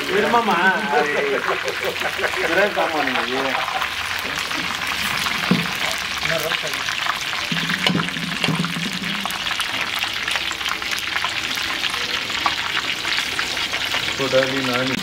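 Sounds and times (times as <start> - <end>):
meat deep-frying in oil: 0.0 - 15.0.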